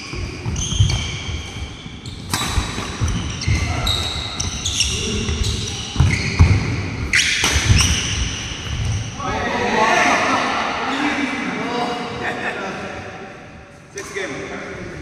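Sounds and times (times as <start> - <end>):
shoes squeaking on wooden court: 0.0 - 9.2
rackets striking shuttlecock: 0.9 - 4.1, 7.2 - 8.2.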